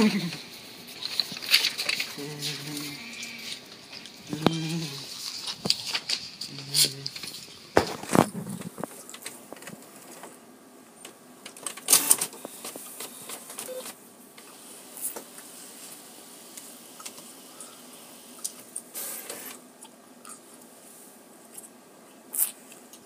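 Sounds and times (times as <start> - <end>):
inkjet printer whirring and clicking: 11.5 - 14.6, 19.0 - 19.6.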